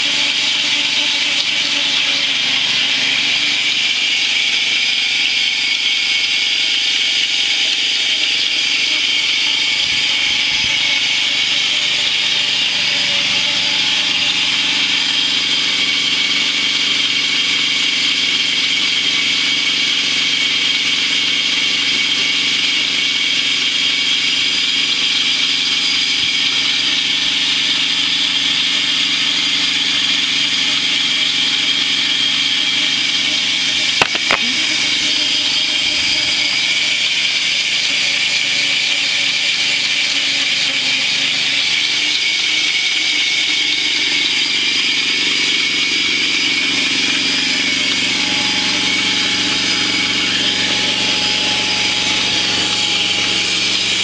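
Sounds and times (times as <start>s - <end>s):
lumber mill engine running: 0.0s - 54.0s
sharp clicks: 34.0s - 34.6s.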